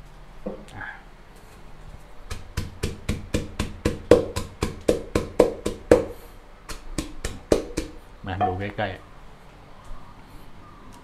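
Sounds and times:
pestle pounding in a mortar: 2.3 - 8.0.

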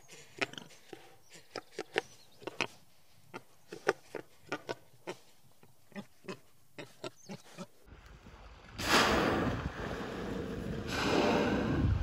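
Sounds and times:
wind rushing on microphone: 8.0 - 12.0.

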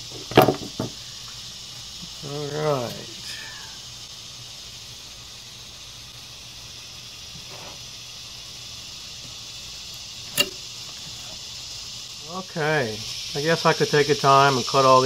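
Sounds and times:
high hiss: 0.0 - 15.0
sharp click: 10.3 - 10.6.

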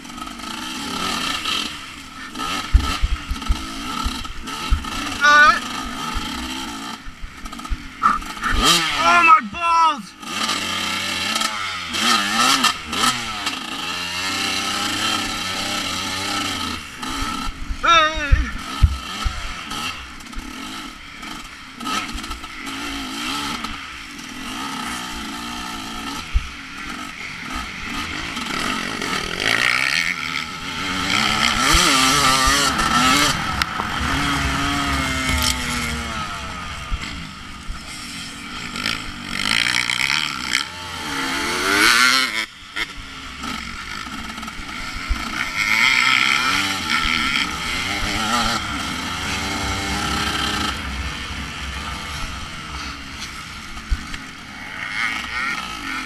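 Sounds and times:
motorcycle engine revving: 0.0 - 56.0
rushing noise: 30.4 - 39.6, 46.6 - 55.8.

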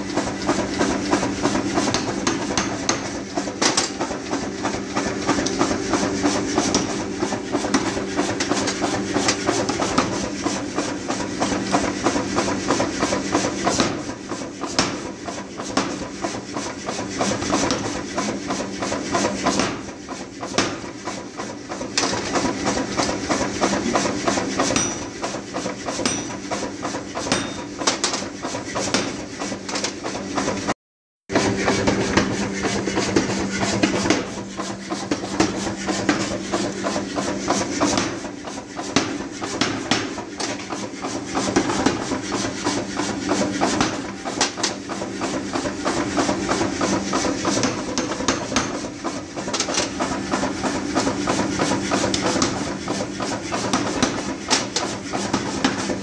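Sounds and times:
power hammer striking metal: 0.0 - 30.6, 31.3 - 50.8.

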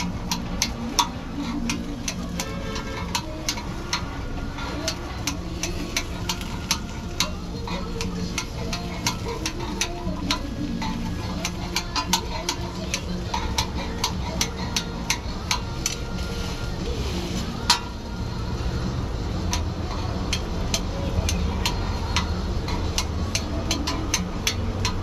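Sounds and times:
sizzle of frying: 0.0 - 25.0.

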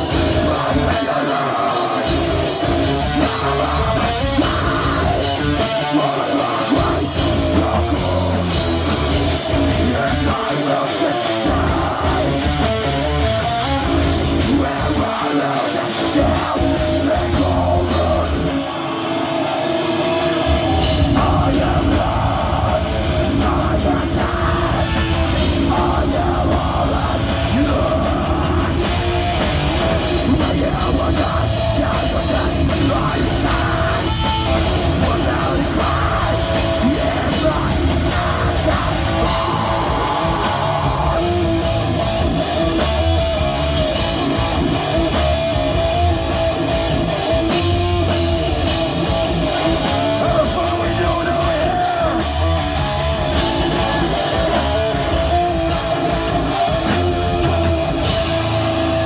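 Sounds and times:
live heavy metal band: 0.0 - 59.0.

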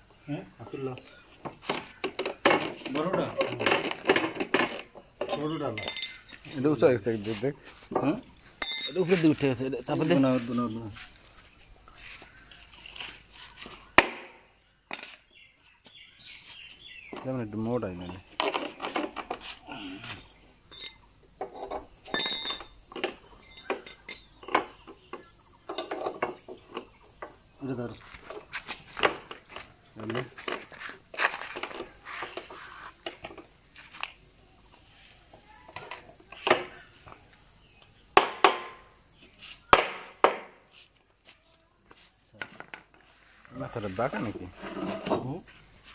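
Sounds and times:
crickets chirping: 0.0 - 45.9
insect buzz: 0.0 - 45.9
knock on wood: 38.2 - 38.8, 39.7 - 40.5.

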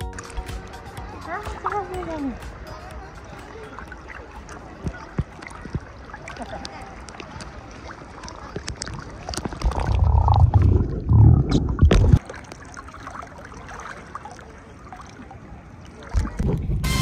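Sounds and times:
music: 0.0 - 5.0, 16.8 - 17.0
water sloshing and splashing: 0.0 - 16.8
low rumble: 9.6 - 12.2.

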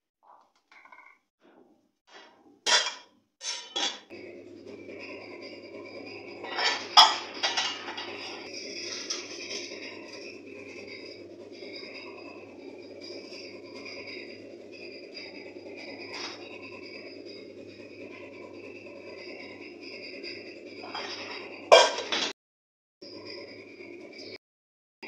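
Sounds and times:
gas burner hissing: 2.1 - 22.3
metal pot and lid clattering: 2.2 - 4.1, 6.4 - 10.1, 20.8 - 22.3.

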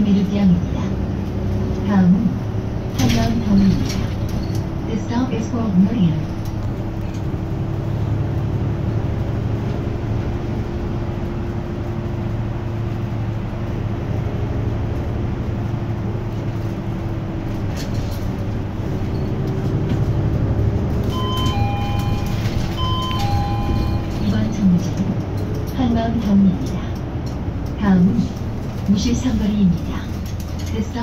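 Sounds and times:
bus diesel engine running: 0.0 - 31.0
road noise: 0.0 - 31.0
two-note electronic chime: 21.1 - 24.1.

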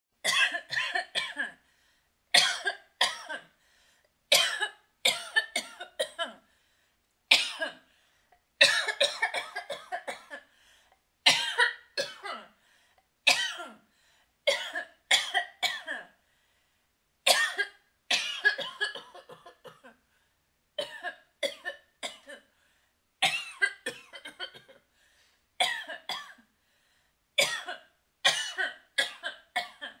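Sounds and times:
woman coughing: 0.2 - 1.6, 2.4 - 3.5, 4.3 - 6.4, 7.3 - 7.8, 8.6 - 10.5, 11.3 - 12.6, 13.3 - 13.8, 14.5 - 16.2, 17.3 - 20.0, 20.8 - 22.5, 23.2 - 24.8, 25.6 - 26.5, 27.4 - 30.0.

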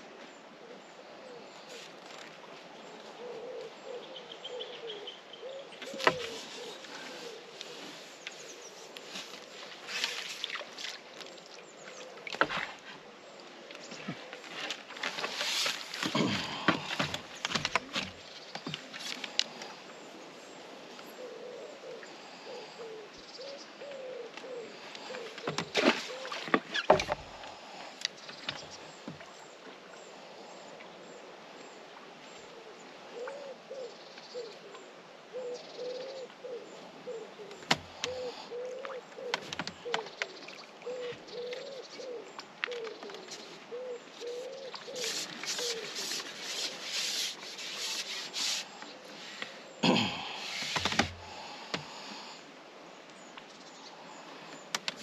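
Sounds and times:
pigeon cooing: 3.2 - 7.5, 35.4 - 40.0, 40.8 - 46.1
fishing tackle knocks and rustles: 14.0 - 19.5, 25.4 - 27.3, 39.3 - 40.1, 50.6 - 51.8.

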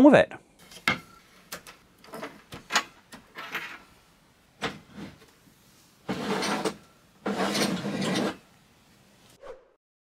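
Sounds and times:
drawer sliding scrape: 4.6 - 5.3, 6.0 - 8.4.

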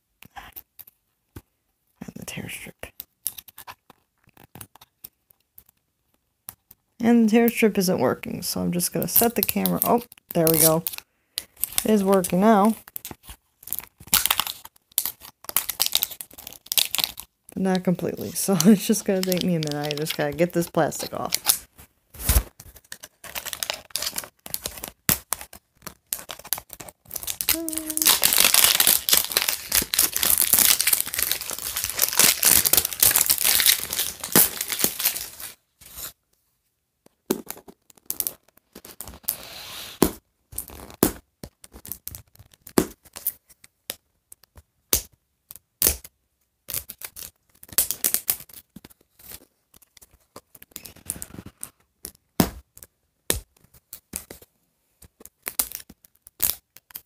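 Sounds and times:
plastic crinkling: 9.1 - 36.1
plastic wrapping tearing: 9.2 - 36.1.

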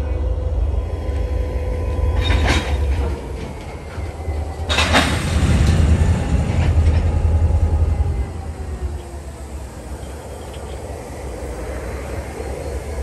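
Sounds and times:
metallic clanks from train cars: 0.0 - 11.2
train wheels rumbling on track: 0.0 - 13.0.

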